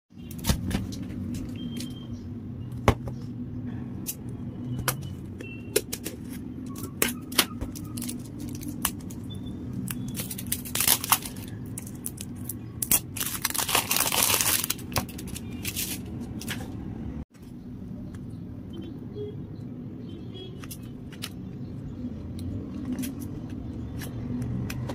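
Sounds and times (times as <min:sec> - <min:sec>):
plastic tearing: 0:05.9 - 0:09.2, 0:09.8 - 0:16.6
plastic wrapping crinkling: 0:07.0 - 0:09.2, 0:09.8 - 0:16.5.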